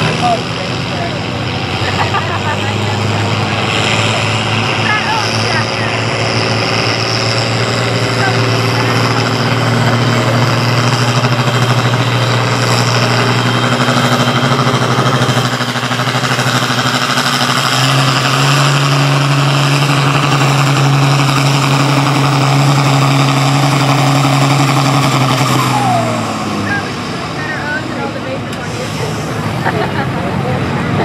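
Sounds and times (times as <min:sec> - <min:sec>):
tractor engine under full load: 0:00.0 - 0:31.0.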